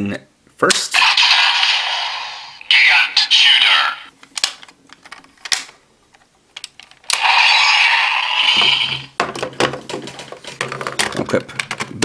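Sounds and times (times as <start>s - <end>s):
electronic toy sound effect: 1.0s - 4.0s, 7.1s - 9.1s.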